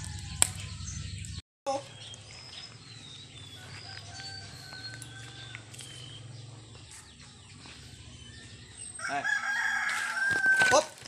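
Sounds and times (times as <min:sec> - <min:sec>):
rooster crowing: 0:00.0 - 0:01.1, 0:03.3 - 0:07.0, 0:08.3 - 0:11.0.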